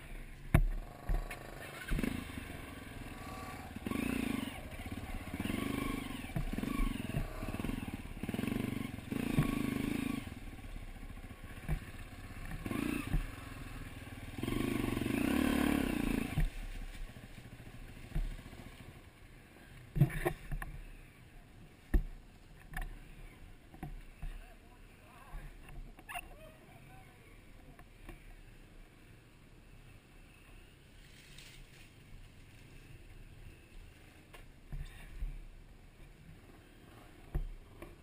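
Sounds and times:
dirt bike engine revving: 0:00.0 - 0:21.2
bike knocking and clattering: 0:11.5 - 0:13.3.

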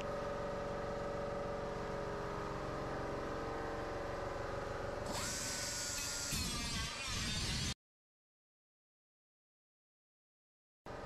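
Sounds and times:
small motor whining: 0:05.0 - 0:07.8.

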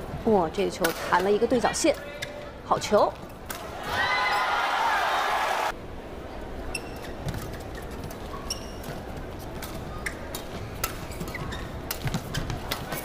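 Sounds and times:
low hall hum: 0:00.0 - 0:13.0
shoes squeaking on court floor: 0:06.7 - 0:13.0.

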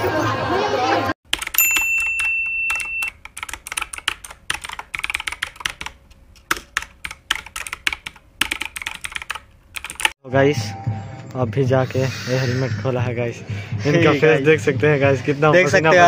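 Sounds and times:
irregular keyboard-like clicking: 0:01.3 - 0:10.2.

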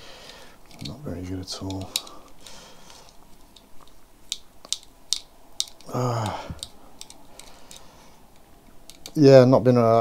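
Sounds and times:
screwdriver clicks and taps: 0:00.7 - 0:01.0, 0:01.6 - 0:02.2, 0:03.0 - 0:07.8, 0:08.4 - 0:09.2
person humming: 0:05.8 - 0:06.6.

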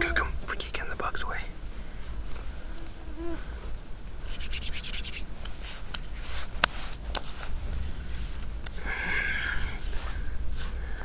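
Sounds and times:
hands rubbing skin and hair: 0:04.2 - 0:08.7.

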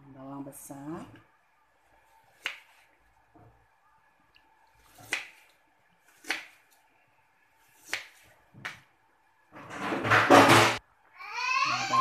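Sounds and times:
knife slicing onion on board: 0:04.8 - 0:06.7, 0:07.6 - 0:08.8.

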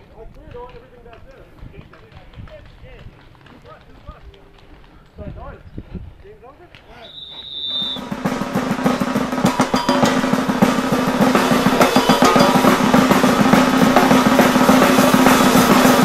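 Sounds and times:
snare drum roll: 0:07.7 - 0:16.0.

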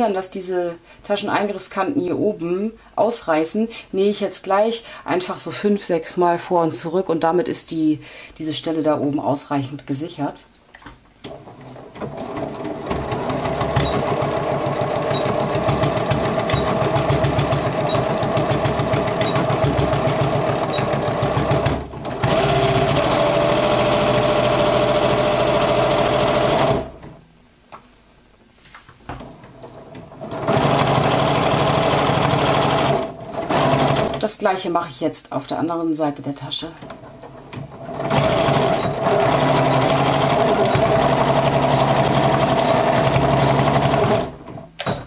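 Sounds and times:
sewing machine stitching: 0:11.2 - 0:27.2, 0:29.6 - 0:34.3, 0:36.8 - 0:45.0.

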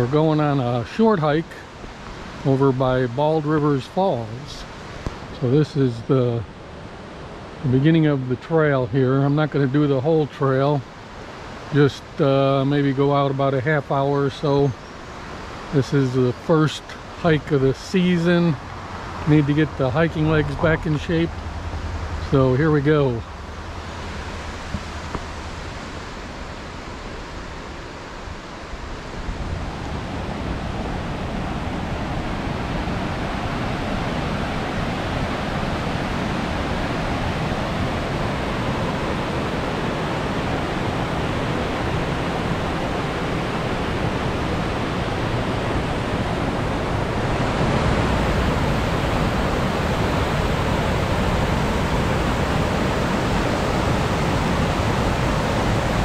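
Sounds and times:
river rushing over rocks: 0:18.0 - 0:56.0.

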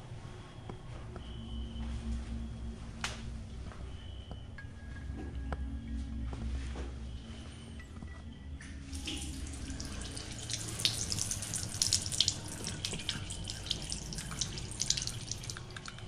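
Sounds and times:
water drips and splashes: 0:08.6 - 0:16.0
water running from a tap: 0:08.8 - 0:16.0.

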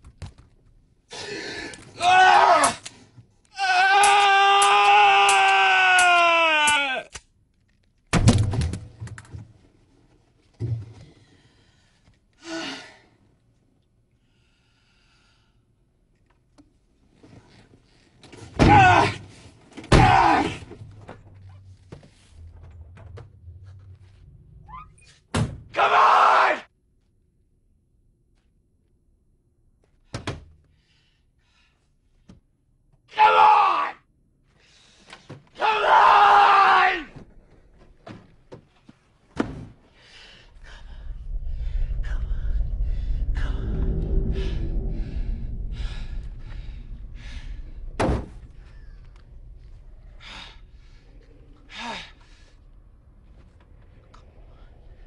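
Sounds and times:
low rumble: 0:20.6 - 0:25.2, 0:39.8 - 0:55.0.

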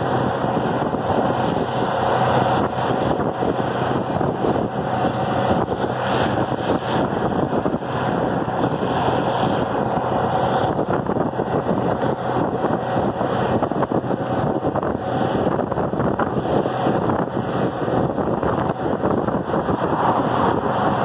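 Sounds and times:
diesel tractor engine running: 0:00.0 - 0:21.0
wind rushing over microphone: 0:00.0 - 0:21.0.

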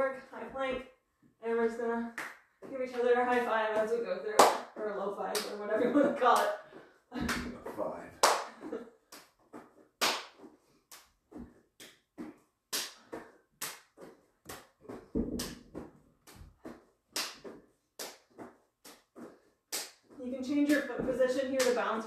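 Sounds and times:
hands slapping high fives: 0:02.2 - 0:04.7, 0:07.2 - 0:11.0, 0:12.7 - 0:14.7, 0:17.1 - 0:18.2, 0:19.7 - 0:20.1.

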